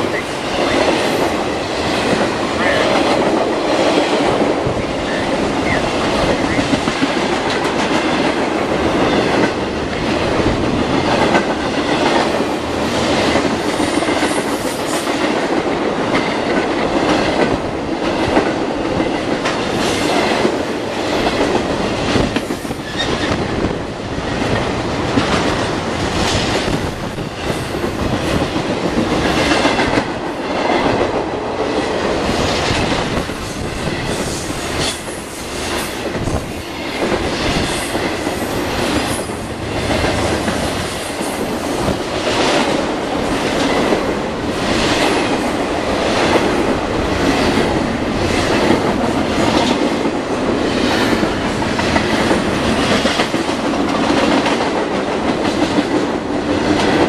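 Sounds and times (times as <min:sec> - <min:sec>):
train wheels rumbling on rail: 0:00.0 - 0:57.0
wheels clacking over rail joints: 0:00.0 - 0:57.0.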